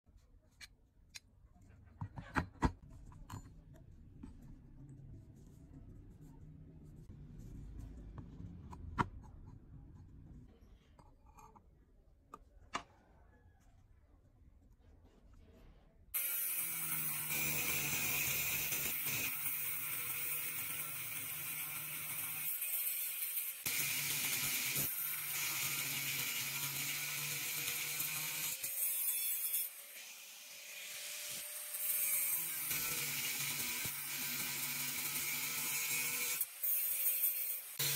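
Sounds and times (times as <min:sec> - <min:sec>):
angle grinder cutting steel: 0:16.2 - 0:37.9.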